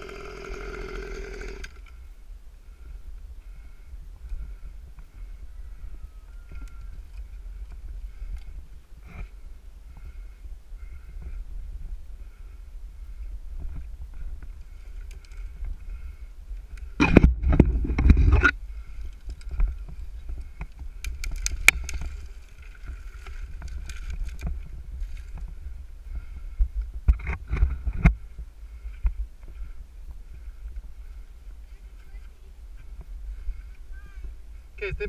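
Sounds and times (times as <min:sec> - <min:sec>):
steady low rumble: 0:01.8 - 0:35.0
ropes scraping against trunk: 0:17.0 - 0:25.5.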